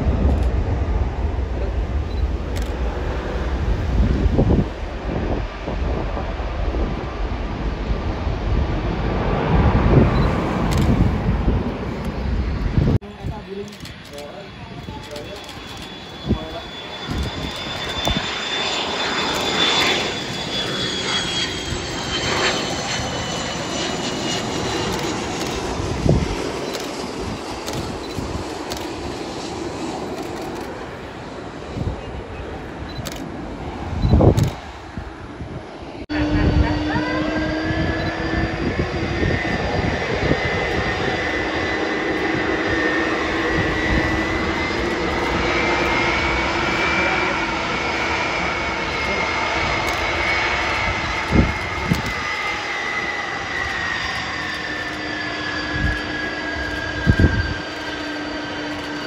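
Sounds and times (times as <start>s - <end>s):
jet engine rumble and whine: 0.0s - 59.0s.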